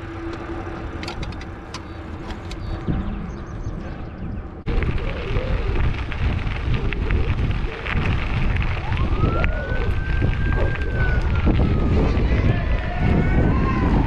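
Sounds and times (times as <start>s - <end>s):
bicycle tyres on gravel: 0.0s - 2.9s, 4.7s - 14.0s
wind noise on microphone: 0.0s - 14.0s
fire truck siren wailing: 8.7s - 14.0s.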